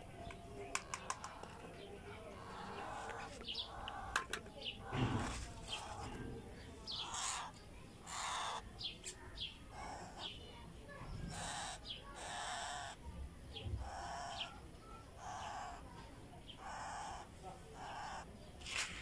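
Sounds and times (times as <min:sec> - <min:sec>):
parrot chick begging calls: 0:06.9 - 0:08.7, 0:11.3 - 0:13.0, 0:13.8 - 0:14.5, 0:16.5 - 0:18.3.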